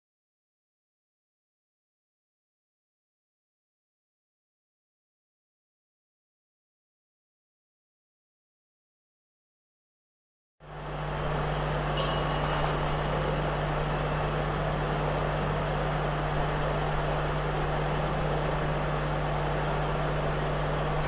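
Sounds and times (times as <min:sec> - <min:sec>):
constant low hum: 0:10.6 - 0:21.0.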